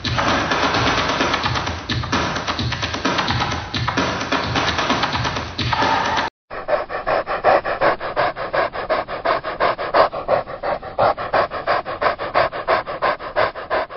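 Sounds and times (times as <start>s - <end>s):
dog panting rapidly: 6.5s - 13.9s.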